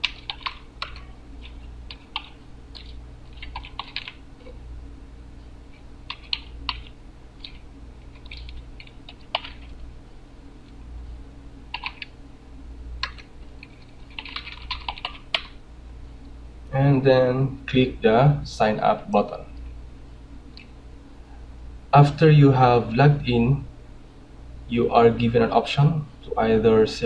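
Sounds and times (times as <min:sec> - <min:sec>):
keyboard typing clicks: 0:00.0 - 0:04.6, 0:06.1 - 0:09.7, 0:11.7 - 0:12.2, 0:13.0 - 0:15.6
steady low hum: 0:00.0 - 0:27.0.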